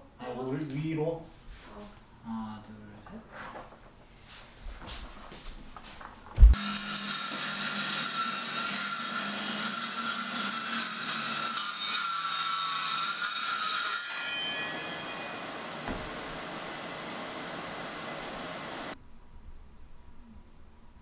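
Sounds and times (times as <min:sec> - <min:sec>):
circular saw cutting wood: 0:06.6 - 0:19.0
vacuum hose sucking: 0:15.4 - 0:19.0
circular saw starting thump: 0:15.8 - 0:16.4.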